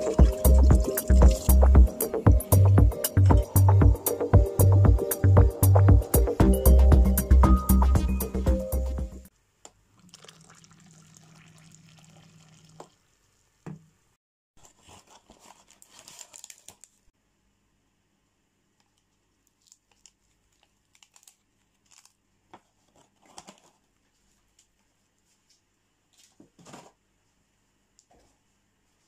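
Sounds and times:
paper wrapper crinkling and tearing: 0:14.6 - 0:17.1, 0:18.9 - 0:24.8.

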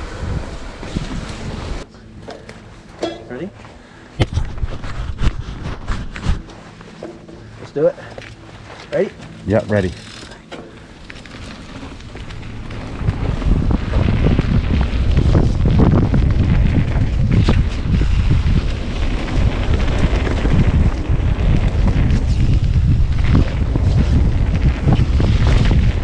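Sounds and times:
wind buffeting microphone: 0:00.0 - 0:01.9, 0:04.2 - 0:06.5, 0:11.0 - 0:26.0.

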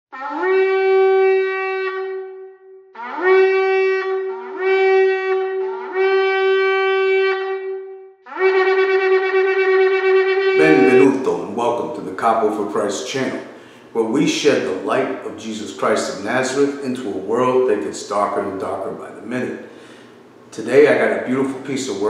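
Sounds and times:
shofar blasts: 0:00.1 - 0:13.4.

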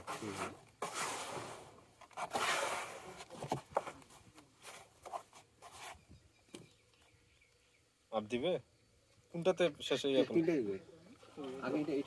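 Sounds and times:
hands scraping sand in plastic drum: 0:00.0 - 0:06.2.

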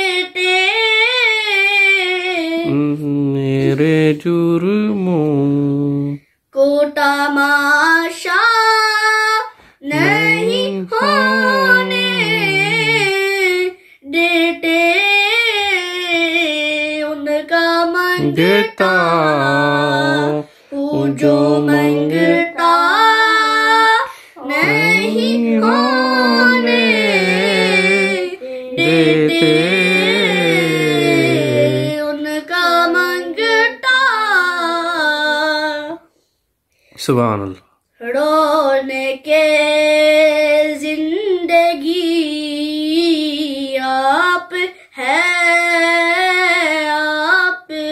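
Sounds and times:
boy singing unaccompanied: 0:00.0 - 0:36.0, 0:38.0 - 0:47.9.

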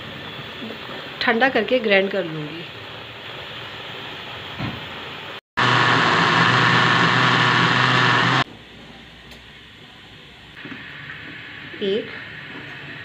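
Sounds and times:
pot boiling with steady hiss: 0:00.0 - 0:05.4, 0:08.3 - 0:13.0
electric mixer grinder running: 0:05.6 - 0:08.5.

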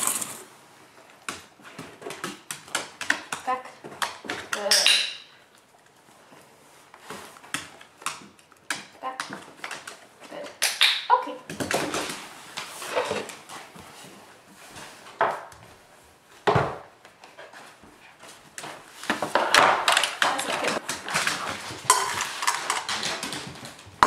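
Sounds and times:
dog claws tapping on wooden floor: 0:01.2 - 0:05.3, 0:07.4 - 0:13.4, 0:18.6 - 0:24.0.

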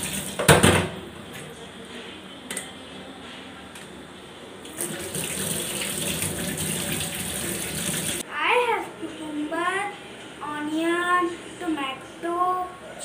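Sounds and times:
tap water running into sink: 0:00.0 - 0:00.6, 0:04.7 - 0:08.2.

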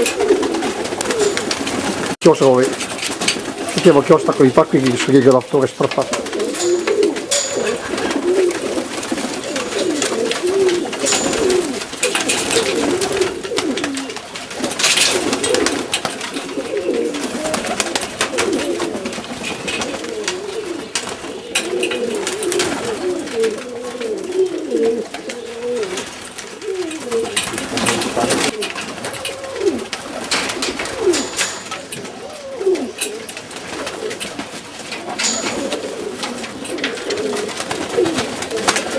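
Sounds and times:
pigeons cooing: 0:00.0 - 0:38.9.

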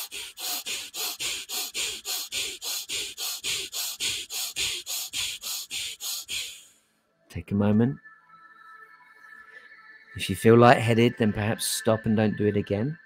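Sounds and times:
rapid breathing through nose: 0:00.0 - 0:07.0.

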